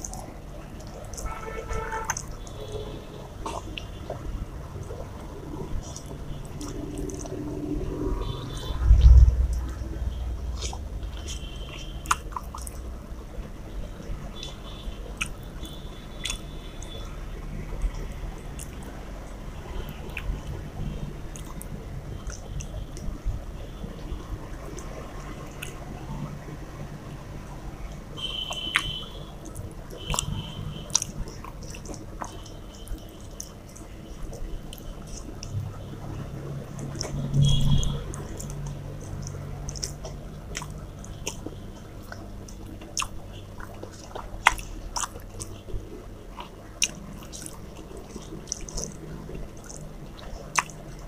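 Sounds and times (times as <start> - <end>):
chewing: 0.0 - 19.0, 19.7 - 23.1, 24.6 - 25.8, 27.9 - 51.0
fingers squishing food: 10.5 - 12.9, 14.0 - 17.1, 28.2 - 35.6, 36.7 - 51.0.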